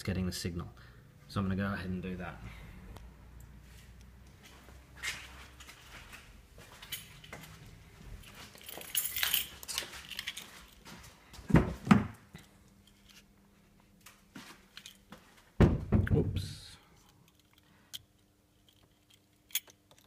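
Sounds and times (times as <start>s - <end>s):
footsteps: 3.6s - 12.0s, 14.0s - 15.6s
handling noises: 4.4s - 13.4s
keys jangling: 6.7s - 10.8s, 14.8s - 15.1s, 18.6s - 20.0s.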